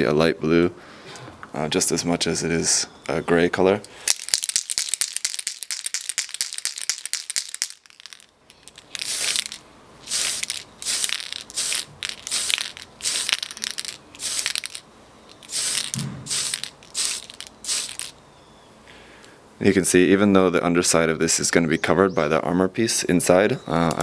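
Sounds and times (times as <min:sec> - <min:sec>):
mixing ball rattling in can: 0:04.1 - 0:18.2
spray can hissing: 0:09.0 - 0:18.2.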